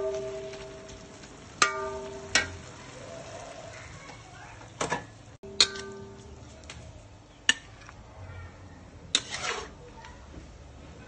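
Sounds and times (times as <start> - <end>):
sharp clanks ringing: 0.0 - 2.6
metal spatula scraping a wok: 9.1 - 9.8.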